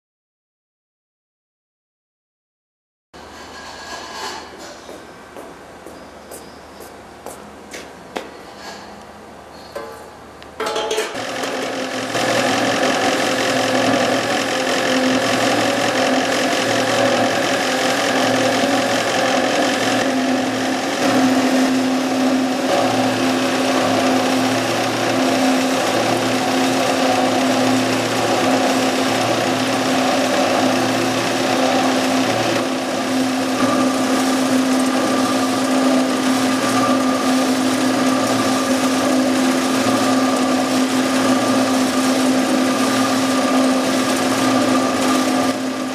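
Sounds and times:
food breading machine humming: 10.1 - 45.9.

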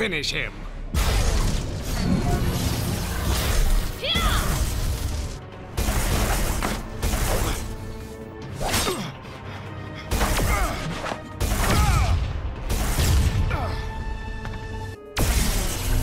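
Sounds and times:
magical zaps: 1.0 - 7.8, 15.2 - 16.0.

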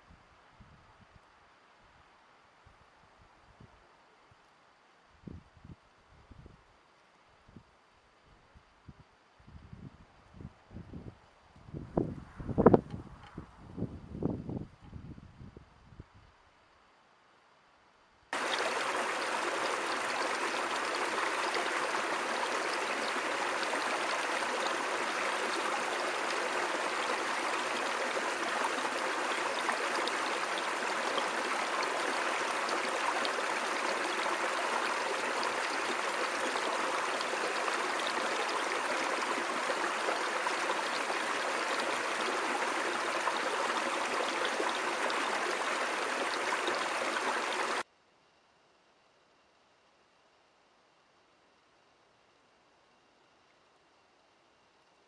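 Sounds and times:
stream running over cascade: 18.4 - 47.9.

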